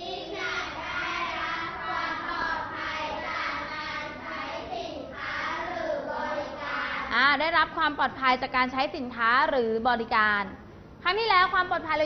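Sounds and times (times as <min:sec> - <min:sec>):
children reciting in chorus: 0:00.0 - 0:07.1.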